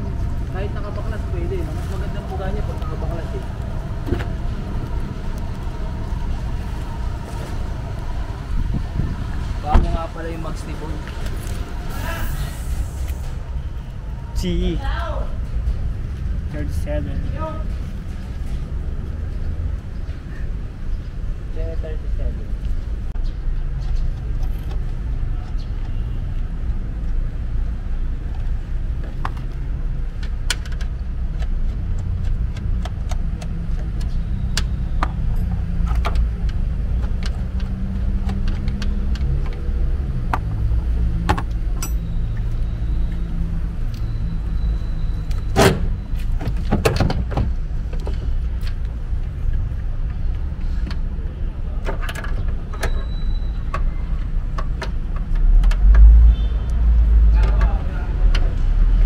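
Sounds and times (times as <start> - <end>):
steady low rumble: 0.0 - 14.7.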